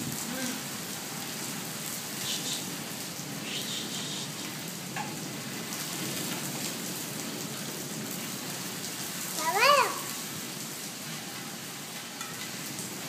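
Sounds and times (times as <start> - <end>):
rain on wet paving: 0.0 - 13.0.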